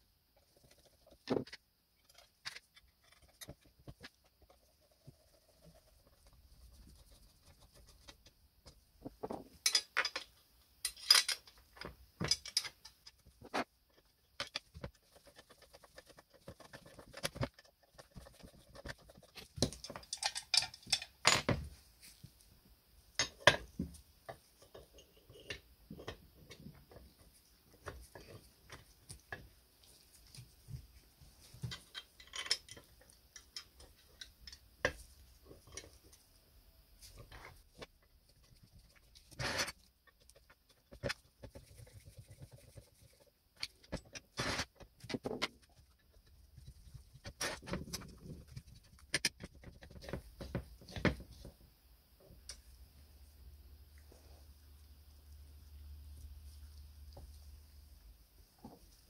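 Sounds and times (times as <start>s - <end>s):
metallic clicks of screws and tools: 9.6s - 13.2s, 19.6s - 21.4s.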